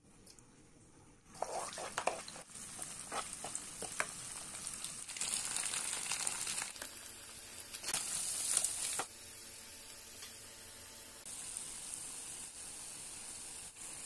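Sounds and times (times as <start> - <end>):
eggs sizzling in a pan: 1.3 - 14.0
spatula scraping and tapping pan: 1.8 - 4.2.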